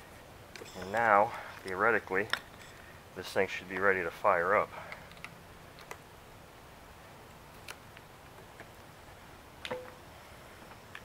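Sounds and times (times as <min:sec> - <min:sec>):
faint handling clicks and taps: 0:03.6 - 0:04.0.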